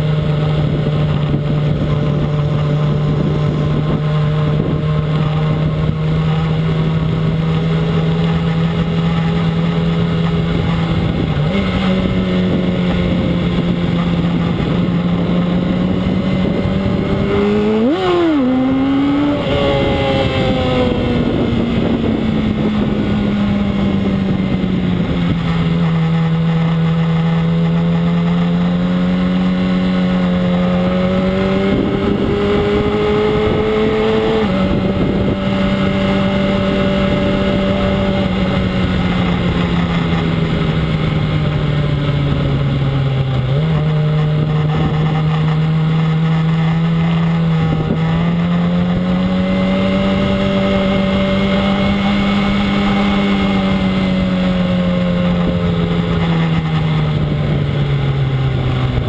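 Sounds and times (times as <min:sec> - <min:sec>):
motorcycle engine running: 0:00.0 - 0:59.0
wind rushing: 0:08.5 - 0:26.0.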